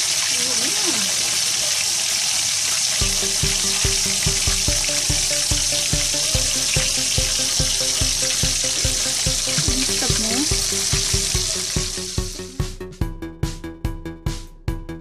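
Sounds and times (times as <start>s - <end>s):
oil sizzling in frying pan: 0.0s - 12.7s
background music with beat: 3.0s - 15.0s.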